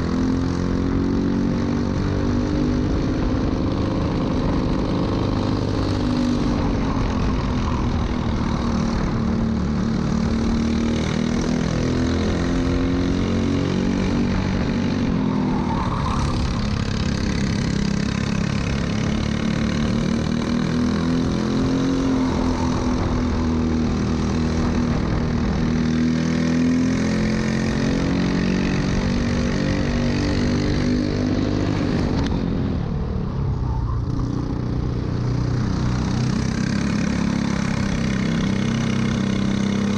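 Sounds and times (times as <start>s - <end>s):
kart engine running: 0.0s - 32.7s, 34.4s - 39.9s.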